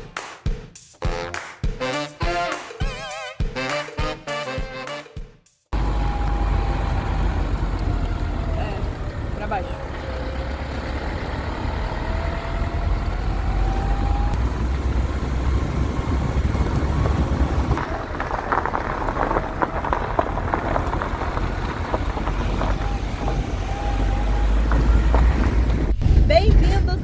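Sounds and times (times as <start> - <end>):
van engine and road rumble: 5.7 - 27.0
thin whine rising in pitch: 5.8 - 18.1
rattling and clatter: 14.4 - 27.0.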